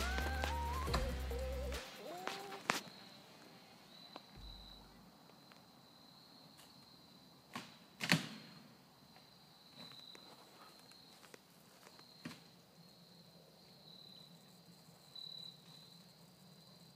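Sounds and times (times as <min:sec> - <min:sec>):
insects buzzing: 0:00.0 - 0:07.6.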